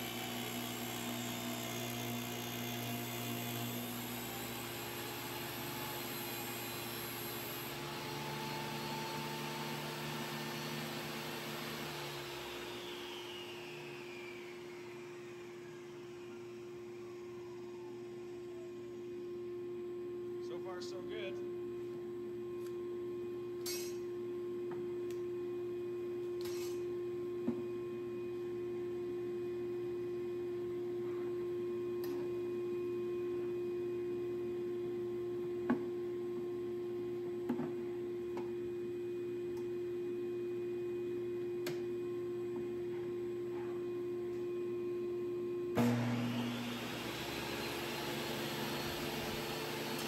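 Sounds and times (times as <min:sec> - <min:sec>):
table saw motor whine: 0:00.0 - 0:19.9, 0:44.3 - 0:50.0.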